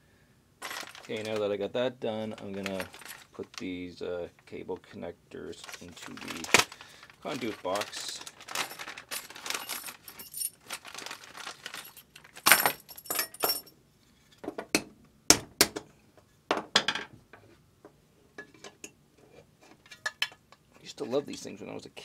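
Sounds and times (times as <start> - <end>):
metal parts set down on wood: 0.6 - 1.4, 11.7 - 13.7
metal connectors clinking: 0.6 - 1.5, 2.3 - 3.6, 5.6 - 13.7
plastic bag rustling: 0.6 - 1.6, 2.2 - 3.8, 5.5 - 13.1.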